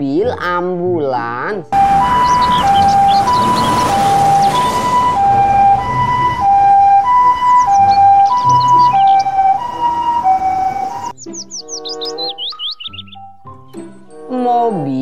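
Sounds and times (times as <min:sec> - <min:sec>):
traffic rumble: 0:01.8 - 0:11.1
two-tone ambulance siren: 0:01.8 - 0:11.2.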